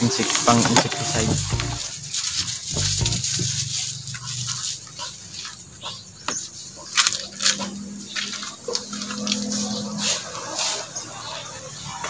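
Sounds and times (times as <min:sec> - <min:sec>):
sprayer hissing mist: 0:00.0 - 0:04.4.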